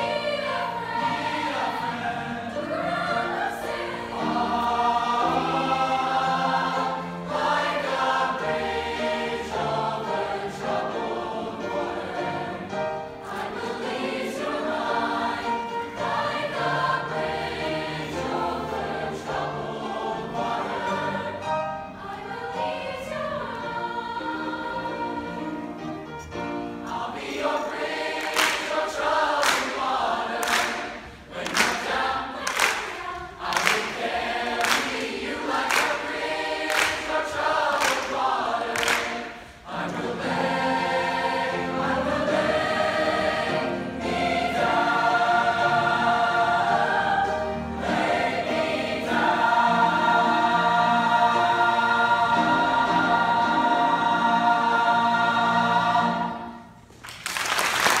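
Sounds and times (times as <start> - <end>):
choir singing: 0.0 - 56.9
applause: 28.2 - 28.6, 33.6 - 33.9, 38.8 - 39.2, 57.0 - 58.0
hand claps: 28.2 - 39.4, 56.9 - 58.0.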